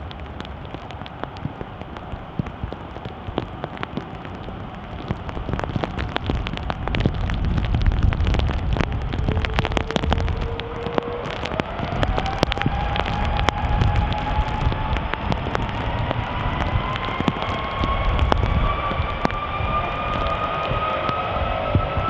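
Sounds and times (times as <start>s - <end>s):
heavy rain ticking: 0.0s - 22.0s
jet engines spooling up: 10.2s - 22.0s.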